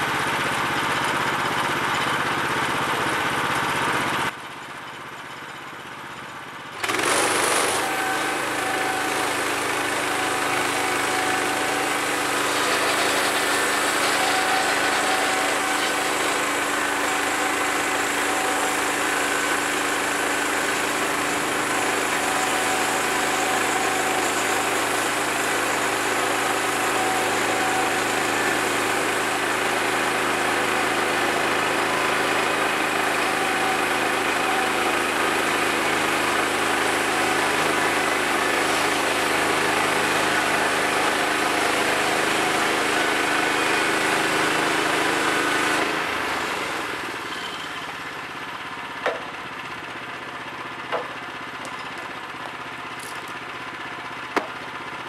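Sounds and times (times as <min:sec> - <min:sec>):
gasoline engine running: 0:00.0 - 0:55.0
band blade cutting through log: 0:06.8 - 0:35.4
sharp knocks of wood slab: 0:49.0 - 0:49.4, 0:50.9 - 0:53.3, 0:54.3 - 0:54.7.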